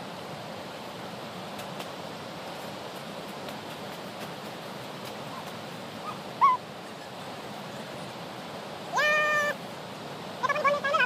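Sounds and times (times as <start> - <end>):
steady rushing outdoor noise: 0.0 - 11.0
short pitched chirping calls: 5.3 - 8.1.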